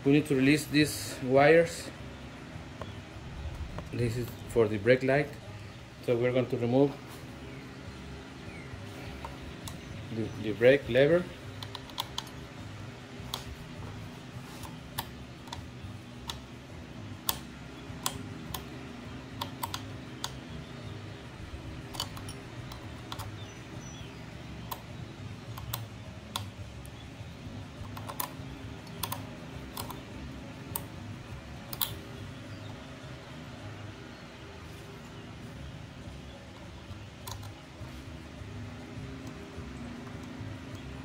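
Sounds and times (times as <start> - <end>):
low steady hum: 0.0 - 41.0
hand ratchet clicking: 11.5 - 12.4, 21.7 - 23.5.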